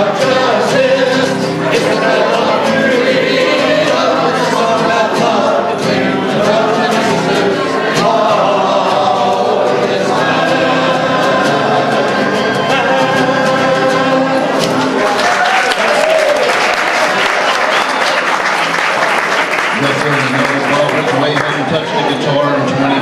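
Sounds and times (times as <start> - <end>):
strummed acoustic guitar: 0.0 - 15.2
people singing folk song: 0.0 - 15.4.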